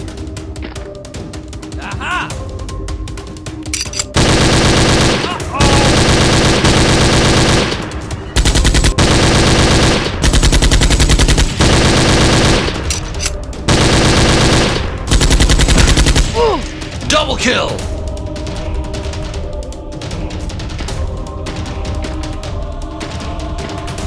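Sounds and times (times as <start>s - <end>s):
machine-gun fire: 4.2s - 13.1s, 13.7s - 16.4s.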